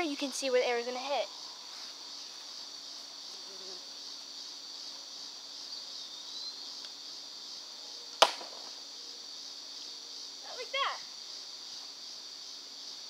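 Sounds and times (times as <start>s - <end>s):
insects buzzing: 0.0s - 13.0s
bowstring snap: 8.2s - 8.7s.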